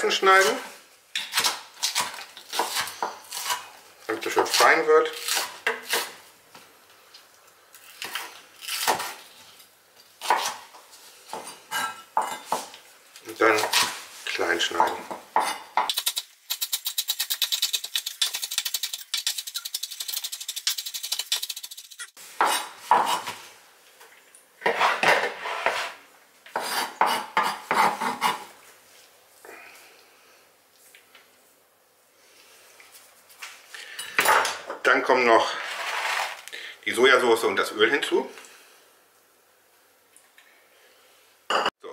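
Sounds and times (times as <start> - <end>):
knife scraping a cutting board: 16.7 - 23.4, 24.6 - 28.5, 35.5 - 36.4.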